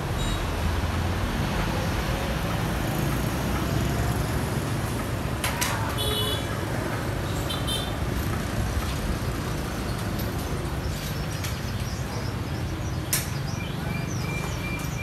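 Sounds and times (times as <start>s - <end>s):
street traffic rumble: 0.0s - 15.0s
sharp click: 13.1s - 13.4s.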